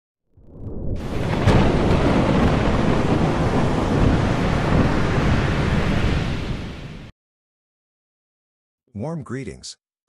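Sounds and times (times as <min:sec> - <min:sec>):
thunder rumbling: 0:00.3 - 0:07.1
sharp thunder crack: 0:00.6 - 0:07.1.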